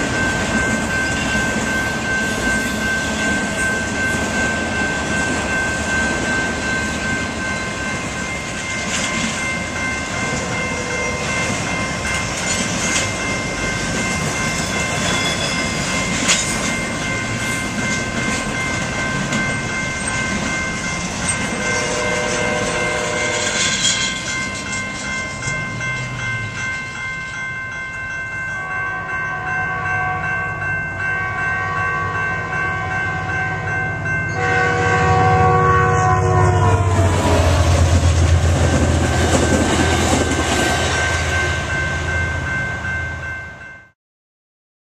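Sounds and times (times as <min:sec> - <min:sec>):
train wheels clattering on rails: 0:00.0 - 0:27.9, 0:37.0 - 0:41.5
crossing bells ringing: 0:00.0 - 0:44.0
train horn blasts: 0:21.5 - 0:24.2, 0:28.6 - 0:30.5, 0:31.1 - 0:37.7.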